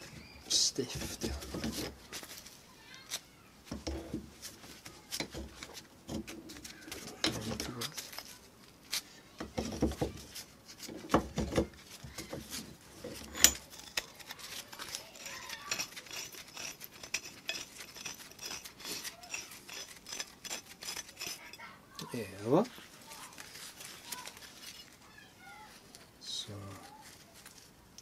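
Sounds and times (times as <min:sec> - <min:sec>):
metal wrench clicking and rattling: 0:13.1 - 0:21.6.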